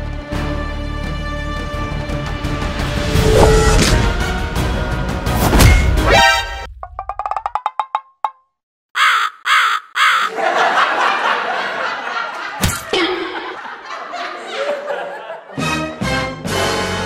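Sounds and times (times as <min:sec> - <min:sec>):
person laughing: 0:09.0 - 0:15.5.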